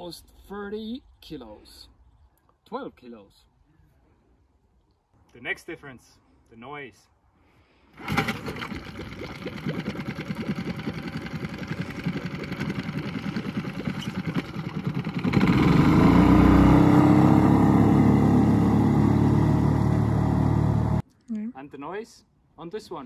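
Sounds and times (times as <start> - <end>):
outboard motor pull-start: 8.0 - 21.0
outboard motor running: 8.0 - 21.0.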